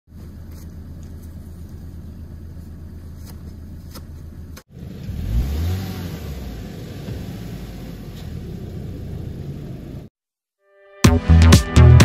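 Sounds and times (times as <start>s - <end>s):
car engine idling: 0.1s - 10.1s
car engine revving: 4.7s - 10.1s.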